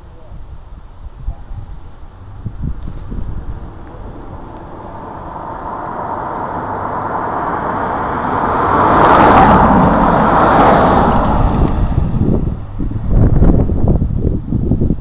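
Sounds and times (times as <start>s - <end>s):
car driving past: 2.4s - 13.5s.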